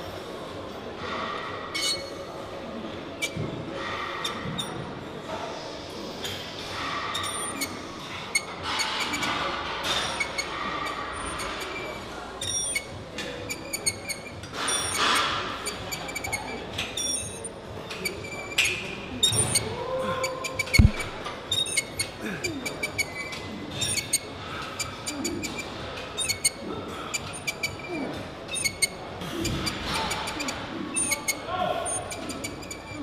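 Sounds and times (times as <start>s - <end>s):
heavy thump: 20.8s - 21.3s.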